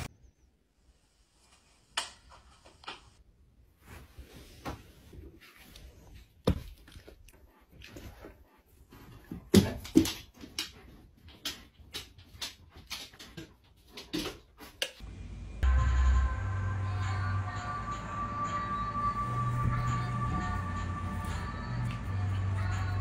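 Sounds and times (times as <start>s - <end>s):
dog moving about clicking: 9.5s - 14.9s.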